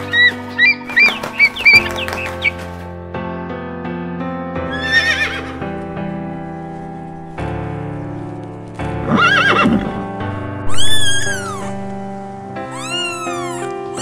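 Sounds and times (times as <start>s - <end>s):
background music: 0.0s - 14.0s
horse whinnying: 4.7s - 5.5s, 9.0s - 10.1s, 10.7s - 11.9s, 12.7s - 14.0s.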